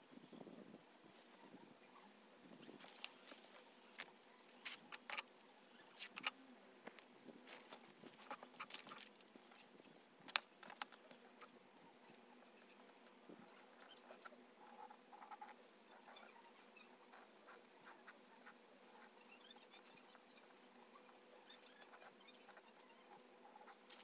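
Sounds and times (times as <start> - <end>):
fabric and paper rustling: 2.6 - 5.2.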